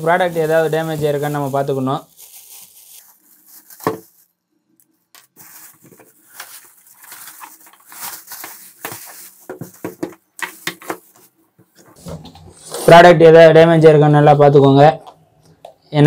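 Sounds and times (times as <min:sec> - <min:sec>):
plastic wrapping crinkling: 0:00.0 - 0:11.4.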